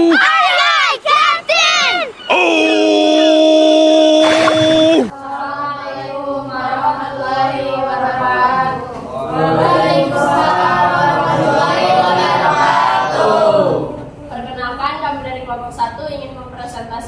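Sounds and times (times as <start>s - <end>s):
group singing without instruments: 4.2s - 14.1s.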